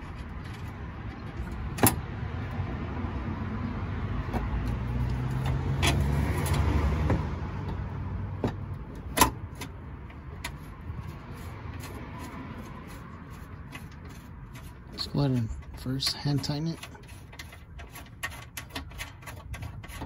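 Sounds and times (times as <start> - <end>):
vehicle engine hum: 0.0 - 20.0.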